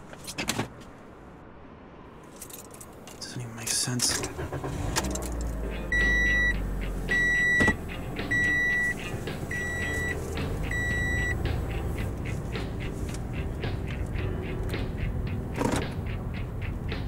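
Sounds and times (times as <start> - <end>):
car engine idling: 3.2 - 17.0
dashboard warning chime beeps: 5.9 - 11.4.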